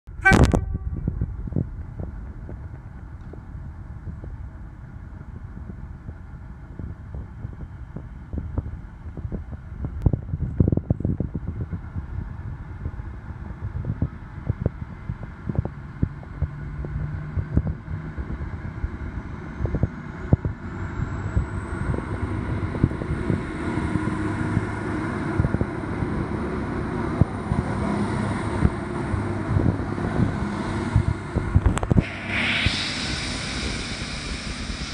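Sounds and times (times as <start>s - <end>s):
wind buffeting microphone: 0.1s - 34.9s
diesel train accelerating: 11.1s - 34.9s
thin rising whine: 18.6s - 34.9s.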